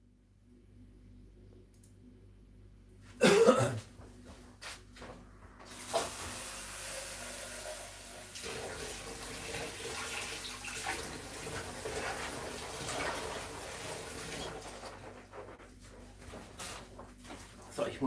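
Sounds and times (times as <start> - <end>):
person coughing: 3.2 - 3.9
water tap running: 5.7 - 15.0.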